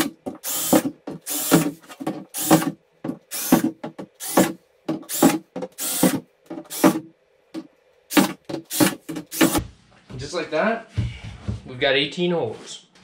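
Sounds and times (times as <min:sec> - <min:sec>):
cordless drill drilling plastic: 0:00.0 - 0:02.7, 0:03.3 - 0:03.6, 0:04.2 - 0:07.0, 0:08.1 - 0:09.6.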